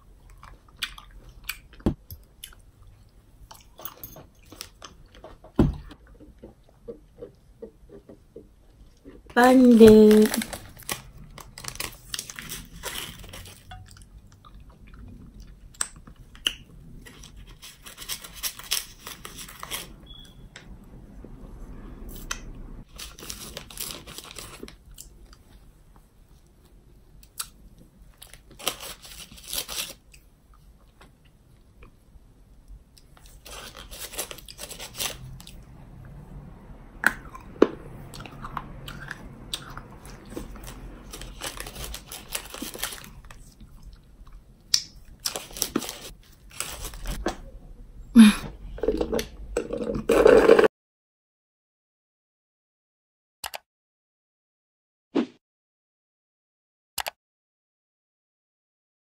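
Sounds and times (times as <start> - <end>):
chewing: 0.2 - 4.8, 38.1 - 46.1
candy wrappers crinkling: 9.4 - 13.7, 17.0 - 20.0, 22.9 - 25.1, 28.1 - 30.1, 33.1 - 35.6, 40.0 - 43.8, 44.8 - 47.2.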